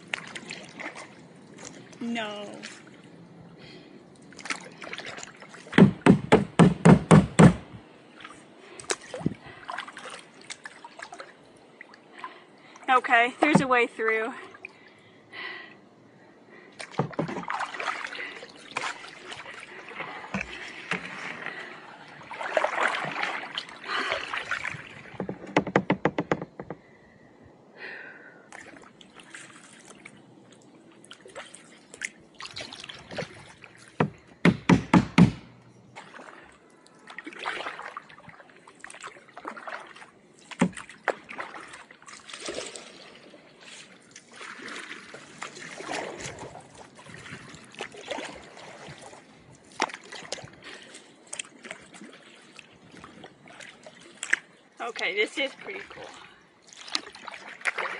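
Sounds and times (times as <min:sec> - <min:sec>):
paddle strokes splashing water: 0:00.0 - 0:03.2, 0:03.8 - 0:06.8, 0:07.8 - 0:14.9, 0:16.8 - 0:25.8, 0:28.5 - 0:34.4, 0:36.0 - 0:57.9
sharp knocks: 0:05.8 - 0:07.8, 0:25.2 - 0:26.8, 0:34.0 - 0:35.6.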